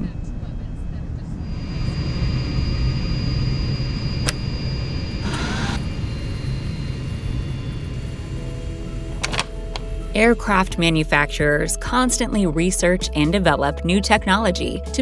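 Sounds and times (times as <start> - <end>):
airliner cabin drone: 0.0 - 11.6
short scraping burst: 5.2 - 5.8.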